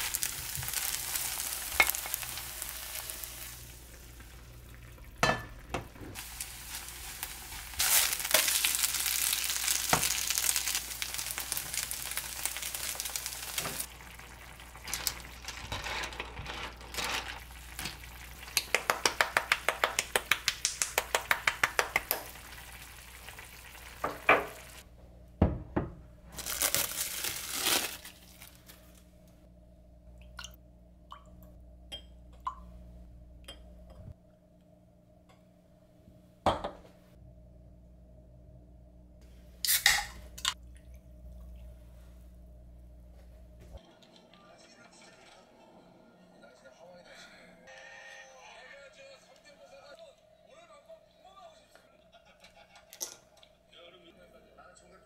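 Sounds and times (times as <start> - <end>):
food sizzling in a frying pan: 0.0 - 24.9, 26.4 - 28.4.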